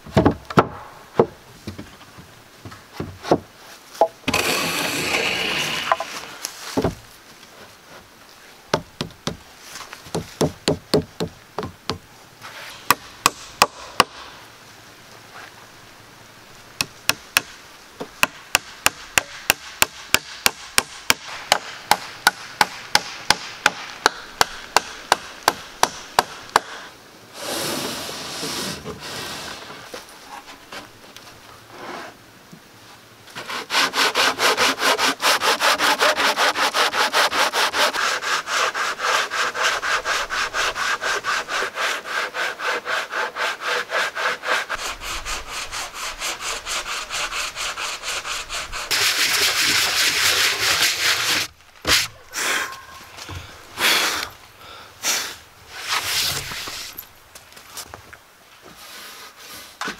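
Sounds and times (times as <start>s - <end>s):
sharp strokes on wood: 4.0s - 6.9s, 33.4s - 52.5s
sanding block rubbing board: 33.4s - 52.1s.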